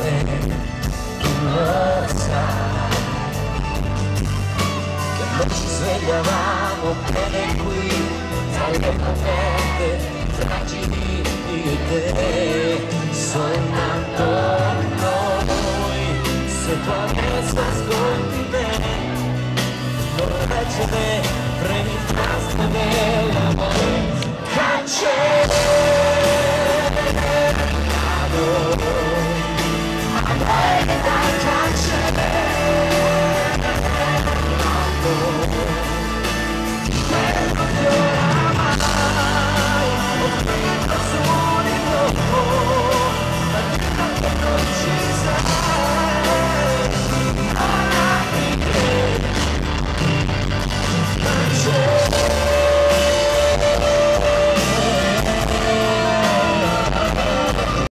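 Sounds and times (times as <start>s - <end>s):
live pop band playing: 0.0s - 57.9s
male singer long notes: 50.9s - 57.9s.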